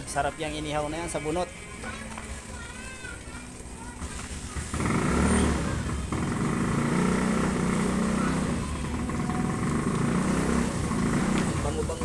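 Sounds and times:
engine running steadily: 3.8 - 12.0.

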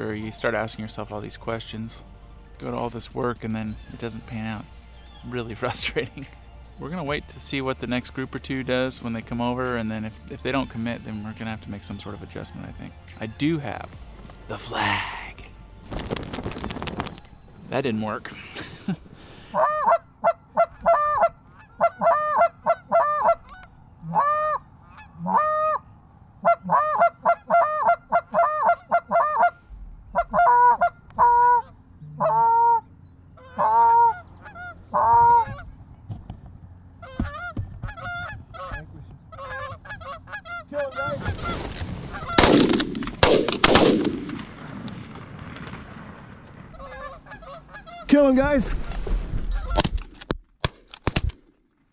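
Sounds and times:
goose honking: 19.5 - 35.8, 36.9 - 42.5, 46.7 - 48.3
sharp cracks: 41.5 - 47.2, 49.7 - 51.9.

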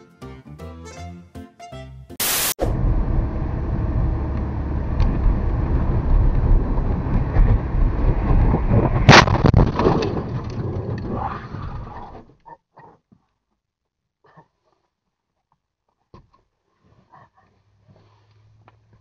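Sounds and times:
tv static: 2.2 - 2.7
car driving on snowy road: 2.6 - 9.1.

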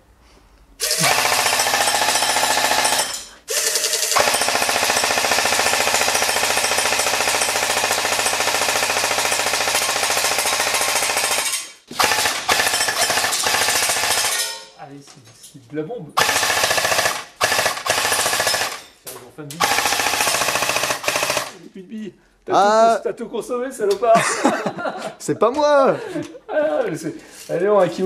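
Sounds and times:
airsoft gun firing full-auto: 0.8 - 14.6, 16.2 - 18.8, 19.6 - 21.6.

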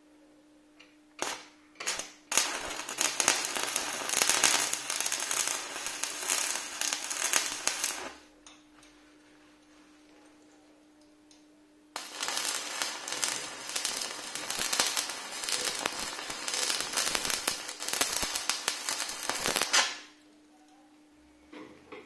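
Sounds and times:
welding arc crackling: 1.2 - 8.3, 12.0 - 20.1.

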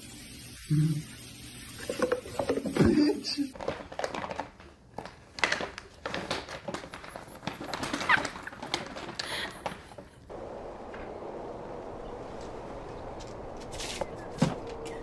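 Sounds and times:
paper bag crinkling: 3.6 - 10.0.

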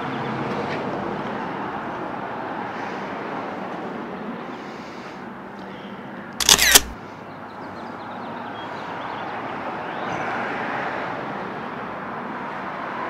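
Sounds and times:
street traffic noise: 0.0 - 13.0.

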